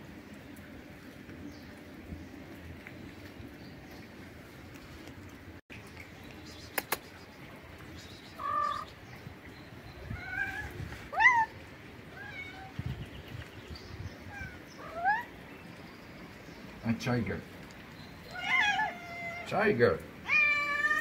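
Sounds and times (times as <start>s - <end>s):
sharp clicks: 6.7s - 7.1s
cat meowing: 8.4s - 8.9s, 10.1s - 11.5s, 12.1s - 12.8s, 18.3s - 19.5s, 20.2s - 21.0s.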